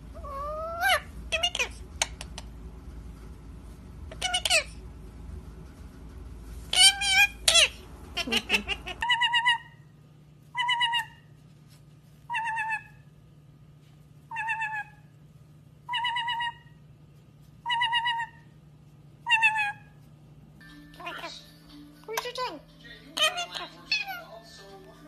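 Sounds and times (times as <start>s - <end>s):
faint steady hum: 0.0s - 25.0s
parrot warbling call: 0.2s - 1.8s, 4.1s - 4.8s, 6.7s - 9.8s, 10.5s - 11.3s, 12.3s - 13.0s, 14.3s - 15.0s, 15.9s - 16.8s, 17.6s - 18.5s, 19.2s - 19.9s, 23.2s - 24.3s.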